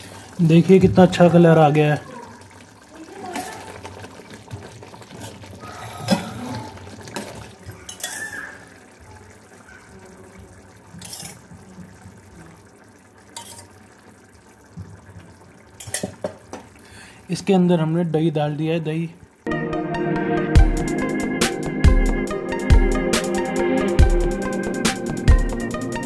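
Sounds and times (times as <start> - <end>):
ladle stirring thick gravy: 0.0 - 16.8.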